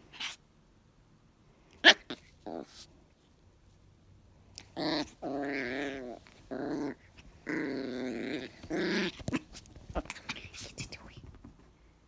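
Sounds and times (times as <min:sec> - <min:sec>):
small dog play-growling: 0:01.7 - 0:03.0, 0:04.5 - 0:10.7.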